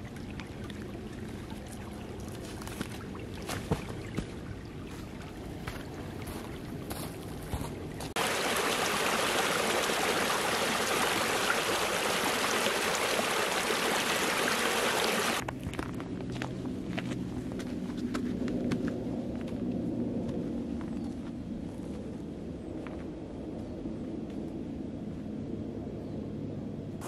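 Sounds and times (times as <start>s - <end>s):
stream running softly: 0.0s - 15.4s
water rushing over branches: 8.2s - 15.4s.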